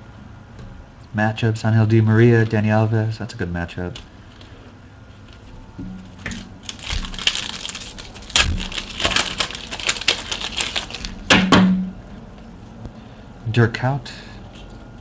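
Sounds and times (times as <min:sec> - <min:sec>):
foil wrapper tearing and crinkling: 0:06.2 - 0:11.4.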